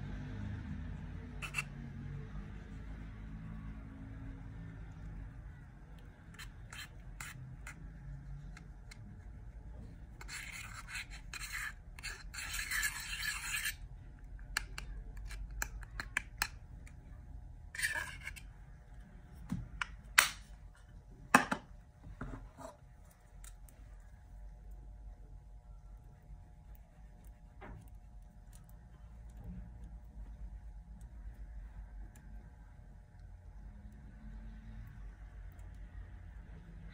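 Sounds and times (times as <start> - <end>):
pin scraping powder: 1.3 - 1.9, 6.0 - 16.6, 17.7 - 18.9.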